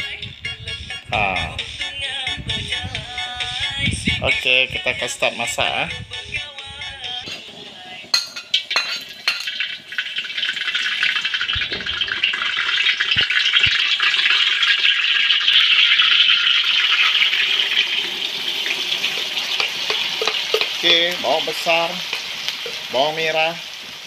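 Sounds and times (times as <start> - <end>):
vegetables sizzling in wok: 7.2 - 24.0.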